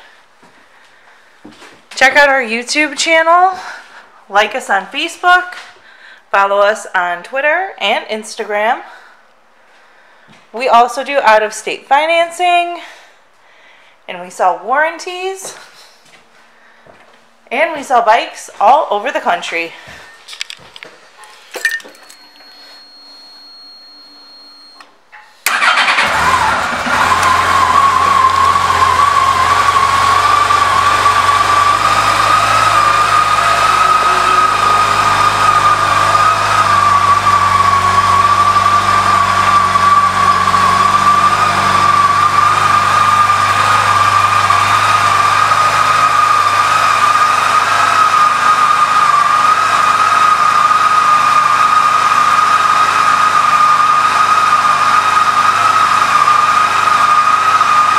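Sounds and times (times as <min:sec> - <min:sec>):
steady high whine: 0:21.2 - 0:25.2
motorcycle engine starting and idling: 0:24.0 - 0:57.9.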